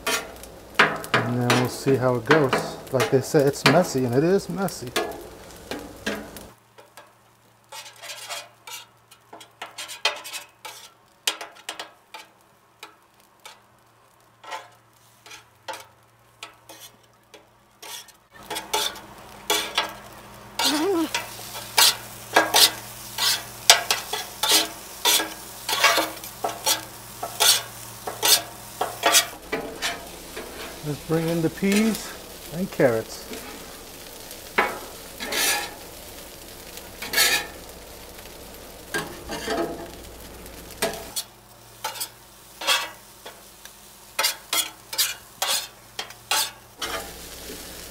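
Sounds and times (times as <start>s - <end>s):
metal spatulas scraping griddle: 0.0s - 4.1s, 7.7s - 12.3s, 14.4s - 17.1s, 17.8s - 19.9s, 20.6s - 32.3s, 32.9s - 35.9s, 36.7s - 37.6s, 38.9s - 40.0s, 40.7s - 43.5s, 44.1s - 47.8s
food sizzling: 0.0s - 47.9s.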